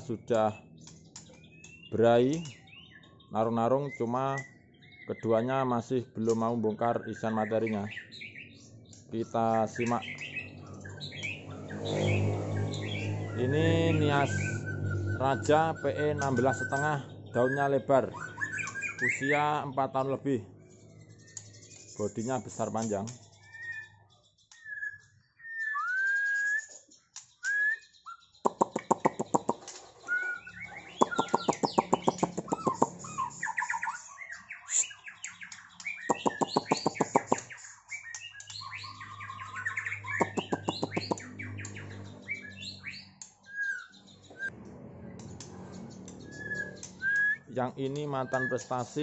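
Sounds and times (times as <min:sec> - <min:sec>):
songbird whistling and rattling: 0:00.7 - 0:03.3, 0:14.1 - 0:19.4, 0:20.9 - 0:44.5, 0:45.2 - 0:49.0.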